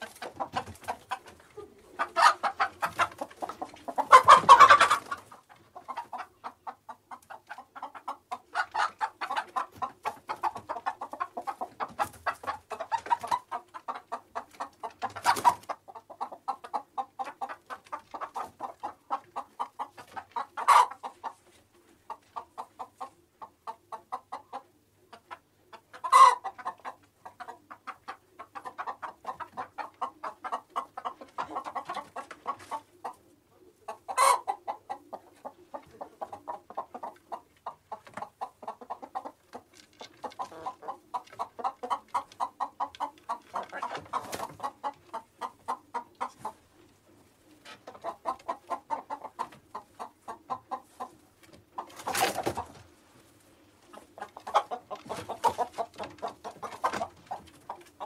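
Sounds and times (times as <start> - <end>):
chickens clucking: 0.0 - 58.0.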